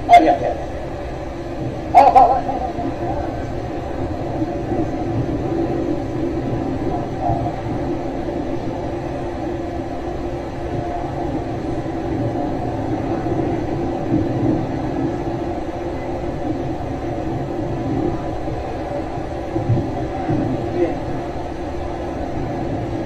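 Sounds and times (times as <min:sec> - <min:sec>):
faint hum: 0:00.0 - 0:23.0
low rumbling noise: 0:00.0 - 0:23.0.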